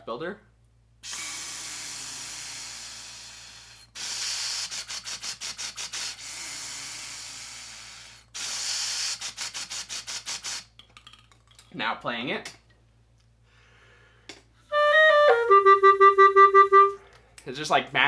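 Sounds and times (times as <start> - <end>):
inhaling through a straw: 1.0 - 10.7
pulsed exhales through a straw: 1.0 - 10.7.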